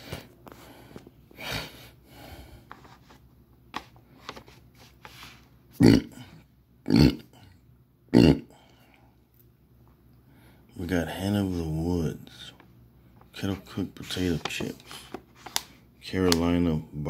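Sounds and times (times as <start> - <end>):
man burping: 5.8 - 8.7.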